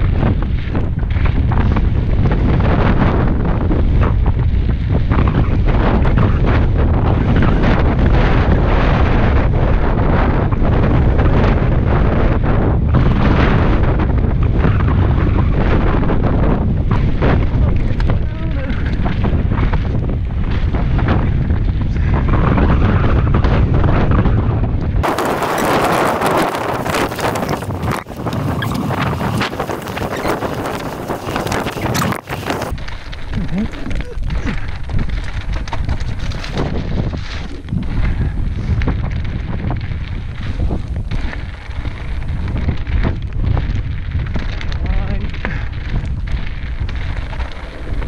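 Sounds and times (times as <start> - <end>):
bike rattling: 0.0 - 48.0
wind buffeting microphone: 0.0 - 48.0
tyres crunching on gravel: 25.0 - 48.0.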